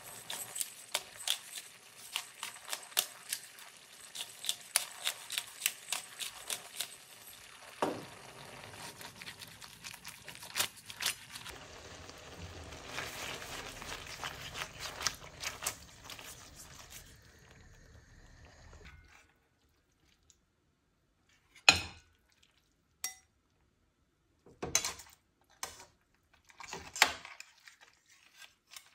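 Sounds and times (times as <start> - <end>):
food sizzling and sloshing in pan: 0.0 - 20.1.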